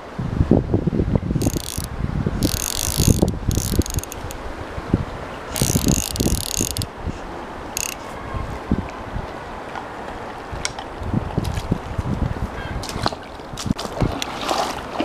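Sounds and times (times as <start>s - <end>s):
wind rumble on microphone: 0.0s - 15.0s
fly reel ratchet buzzing: 1.4s - 4.4s, 5.5s - 6.9s, 7.8s - 8.0s.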